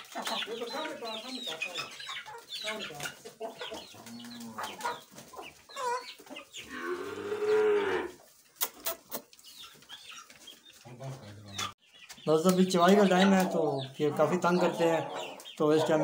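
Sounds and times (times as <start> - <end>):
chickens clucking: 0.0 - 16.0
long animal call: 6.7 - 8.2.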